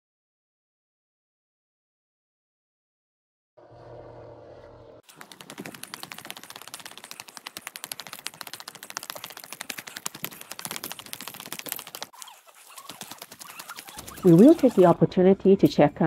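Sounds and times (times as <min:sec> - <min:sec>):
sharp clicks and crackles: 0:05.0 - 0:15.0.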